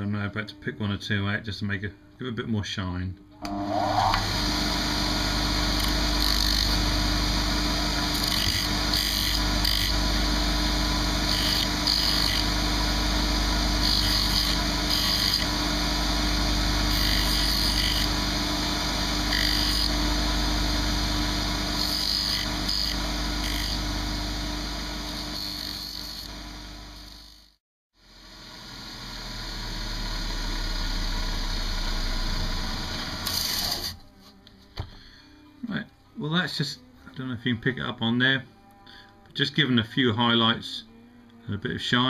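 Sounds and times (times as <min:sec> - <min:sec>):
polishing motor humming: 0:03.5 - 0:27.5.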